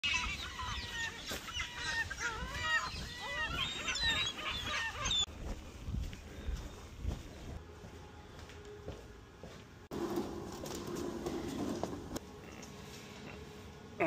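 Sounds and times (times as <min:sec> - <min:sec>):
flock of birds calling: 0:00.0 - 0:05.3.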